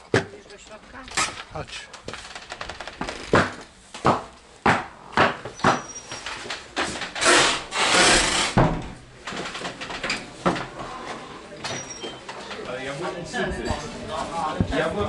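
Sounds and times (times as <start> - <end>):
scraping rustling noise: 6.0 - 8.6.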